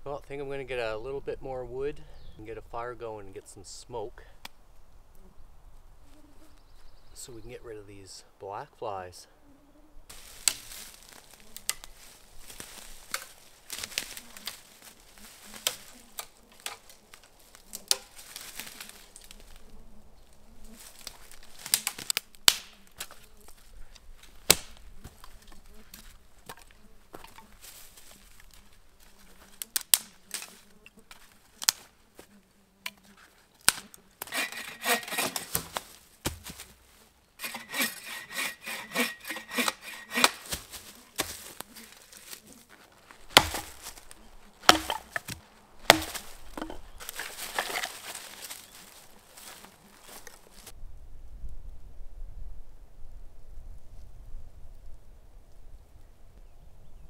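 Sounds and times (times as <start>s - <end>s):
dry sticks snapping: 10.1s - 19.6s, 20.8s - 28.6s, 29.4s - 31.9s, 32.8s - 36.8s, 37.4s - 42.5s, 43.1s - 50.7s
footsteps on dry leaves: 10.1s - 22.2s, 22.8s - 32.3s, 34.2s - 50.7s
split wood set down: 33.7s - 36.8s, 38.9s - 41.6s, 43.3s - 50.4s
fast rasping strokes: 34.2s - 35.7s, 37.4s - 42.6s, 43.3s - 48.6s.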